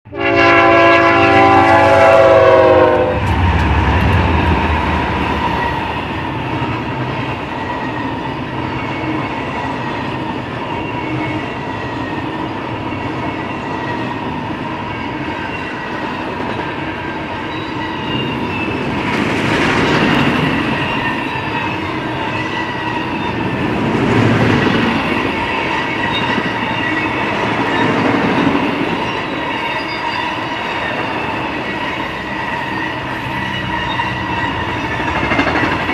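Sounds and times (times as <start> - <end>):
train air horn: 0.1 - 3.9, 32.0 - 35.1
locomotive engine rumble: 1.5 - 7.1
freight cars clattering on rails: 34.5 - 35.9.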